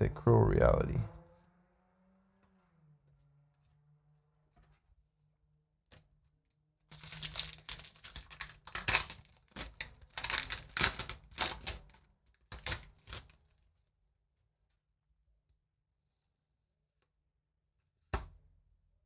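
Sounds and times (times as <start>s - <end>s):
foil wrapper crinkling and tearing: 6.9s - 13.6s.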